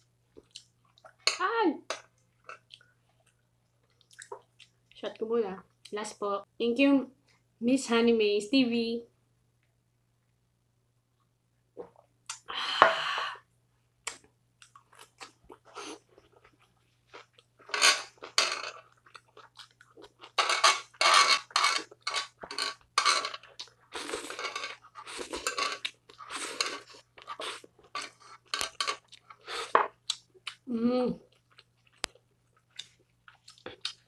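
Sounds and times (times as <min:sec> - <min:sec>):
chewing and crunching: 0:14.1 - 0:30.7, 0:31.3 - 0:34.0.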